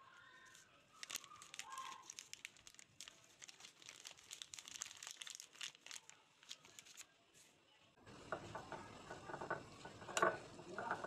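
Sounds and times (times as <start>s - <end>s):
plastic packet crinkling: 0.0s - 7.1s.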